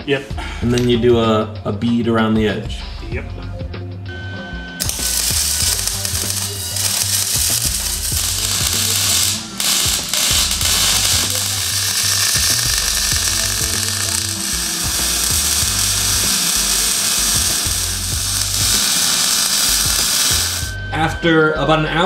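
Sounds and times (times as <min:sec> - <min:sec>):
welding arc crackling and hissing: 0:04.8 - 0:20.8.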